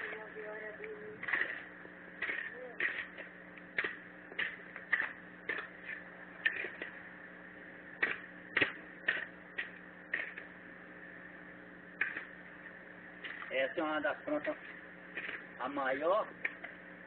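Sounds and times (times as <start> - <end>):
faint steady hum: 0.0 - 17.0
hoe chopping into soil: 8.0 - 10.4.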